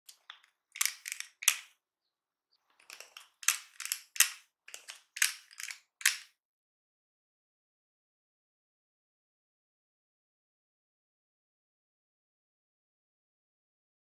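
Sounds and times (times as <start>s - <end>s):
metal batter scoop clicking: 0.1s - 1.7s, 2.8s - 6.3s.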